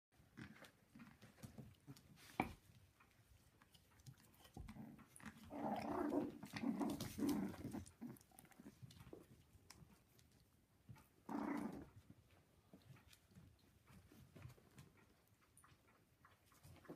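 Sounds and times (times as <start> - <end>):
puppies growling in play: 4.1 - 16.9.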